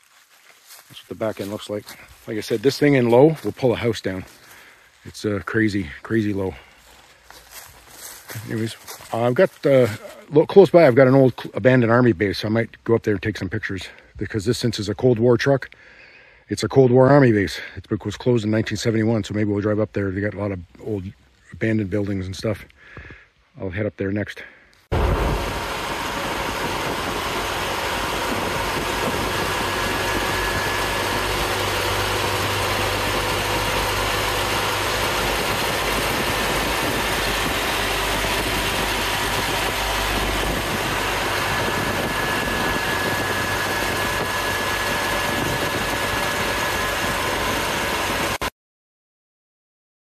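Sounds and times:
truck engine running: 0.7s - 11.4s, 24.9s - 48.5s.

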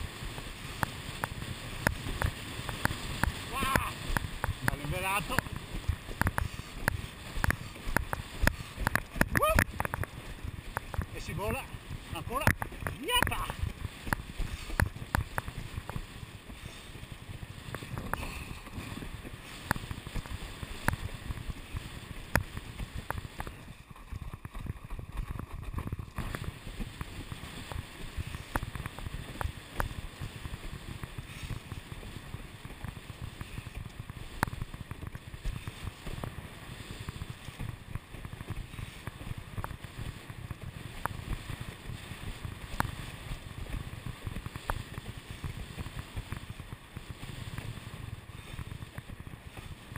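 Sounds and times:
board hull slapping water: 0.0s - 49.9s
water rushing: 0.0s - 49.9s
wind buffeting microphone: 0.0s - 49.9s.

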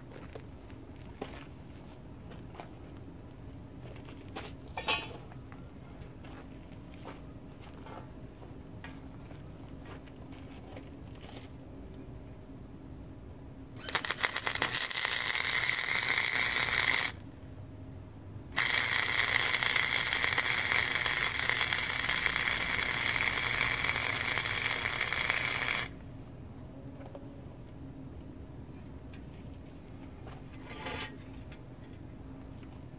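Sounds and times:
welder arc crackling: 13.8s - 17.2s, 18.6s - 26.0s.

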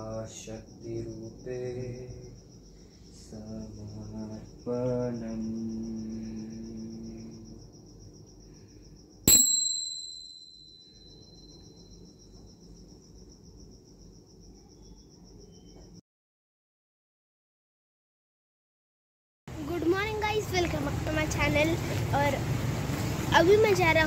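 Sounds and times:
crickets chirring: 0.0s - 16.0s, 19.5s - 24.0s
metallic ding: 9.3s - 11.6s.

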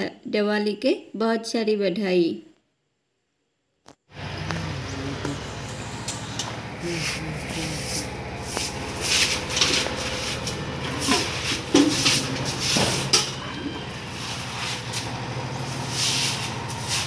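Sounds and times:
steady low hum: 4.1s - 17.0s
broom sweeping water: 5.1s - 13.1s, 14.1s - 17.0s.

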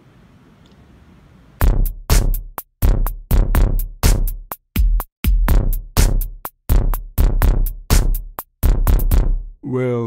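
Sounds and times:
electronic music with drum-machine beat: 1.6s - 9.4s.

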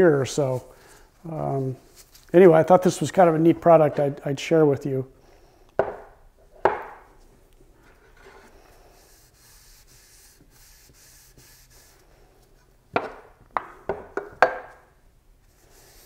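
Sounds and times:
gloved hands rustling cloth rag: 1.5s - 3.2s.

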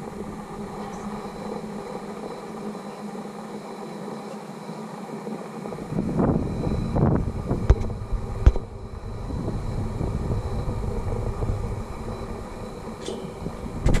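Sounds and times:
wind buffeting microphone: 0.0s - 3.8s, 5.3s - 14.0s.

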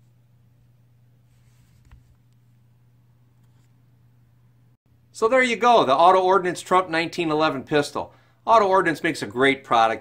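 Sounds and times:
faint rustle: 1.2s - 2.3s.

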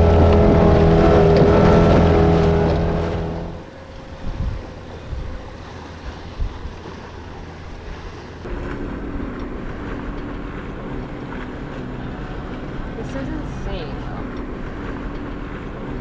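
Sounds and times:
motorboat engine drone: 0.0s - 16.0s
wind buffeting microphone: 0.0s - 16.0s.

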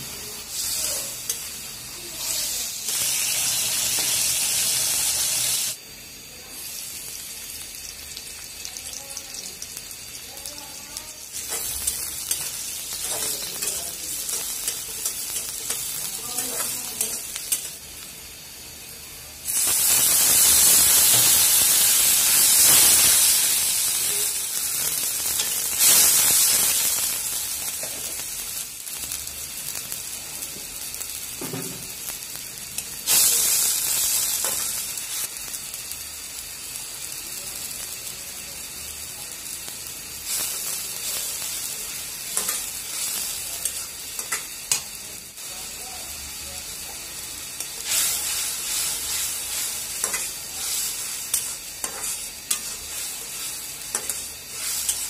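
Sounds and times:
onions sizzling in hot oil: 0.0s - 55.0s
metal spatula scraping: 47.7s - 55.0s.

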